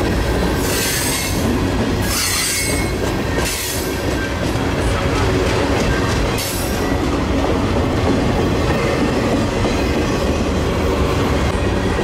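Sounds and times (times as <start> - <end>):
steel wheels rumbling on rail: 0.0 - 12.0
high-pitched wheel squeal: 2.1 - 3.0.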